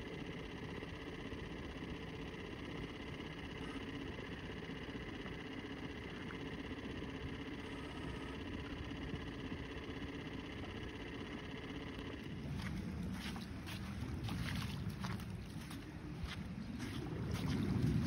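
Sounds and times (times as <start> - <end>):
outboard motor running: 0.0 - 18.0
wind: 0.0 - 18.0
water noise: 12.3 - 18.0.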